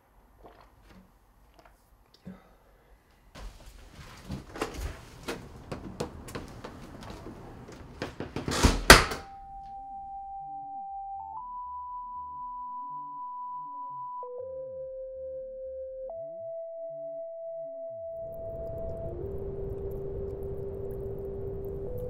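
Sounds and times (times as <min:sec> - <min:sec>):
knocks and clatter: 0:04.2 - 0:09.3
loud thumps: 0:04.2 - 0:09.4
electronic tone: 0:09.4 - 0:22.0.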